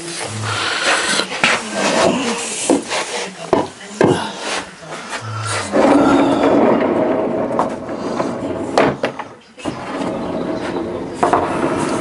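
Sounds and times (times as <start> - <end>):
heavy sliding door rumbling on track: 5.4 - 12.0.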